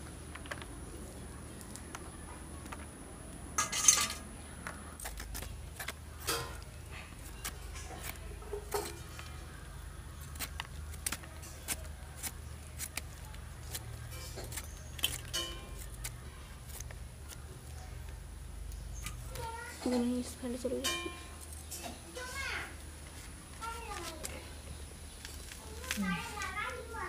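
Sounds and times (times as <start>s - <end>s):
metallic rattle: 3.6s - 4.3s
peeler scraping vegetable: 10.2s - 17.8s.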